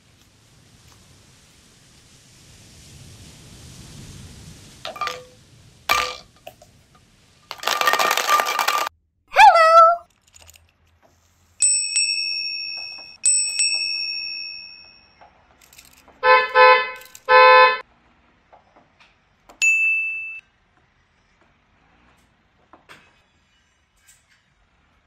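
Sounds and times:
bicycle bell ringing: 0:11.6 - 0:16.0, 0:19.6 - 0:20.4
car horn beeps: 0:16.2 - 0:17.8
short bright ding: 0:19.6 - 0:20.4.

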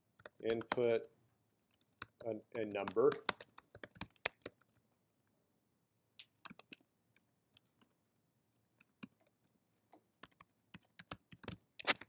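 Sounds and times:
computer keyboard keystrokes: 0:01.7 - 0:04.8, 0:06.3 - 0:06.8, 0:10.2 - 0:12.0.

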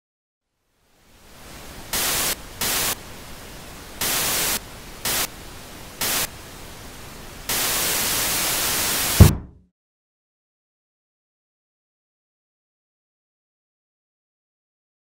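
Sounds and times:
television static hiss: 0:00.5 - 0:09.3.

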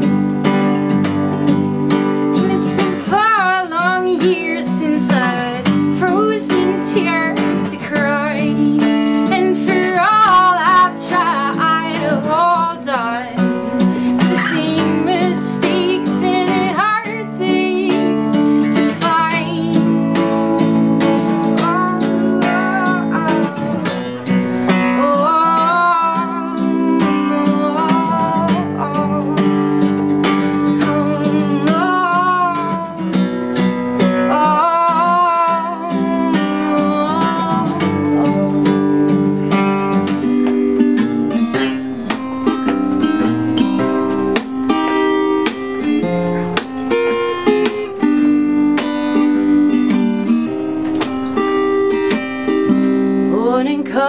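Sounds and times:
acoustic guitar strumming: 0:00.0 - 0:54.0
woman singing with vibrato: 0:02.4 - 0:33.3, 0:34.1 - 0:39.1, 0:53.2 - 0:54.0.

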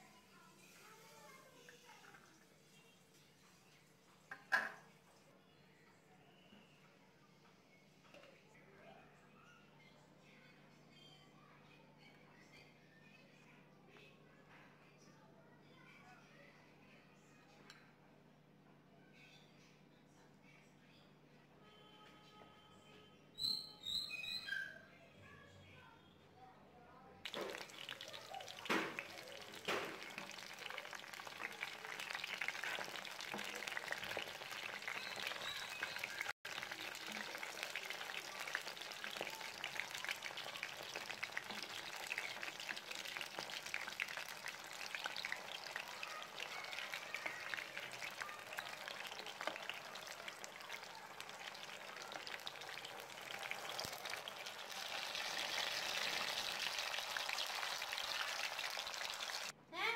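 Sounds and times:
patties sizzling in oil: 0:27.2 - 0:59.6.

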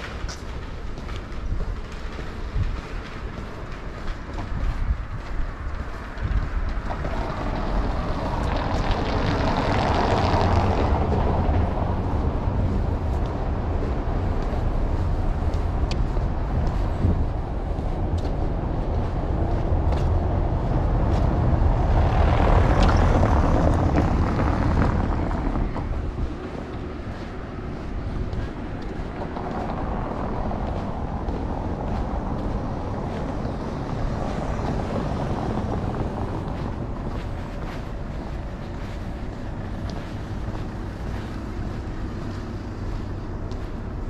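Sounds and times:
rumble of passing vehicles: 0:00.0 - 0:44.0.

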